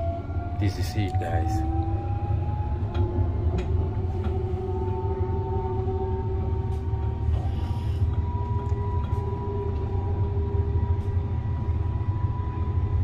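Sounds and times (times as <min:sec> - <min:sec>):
train rumbling: 0:00.0 - 0:13.0
train motor whine: 0:01.1 - 0:13.0.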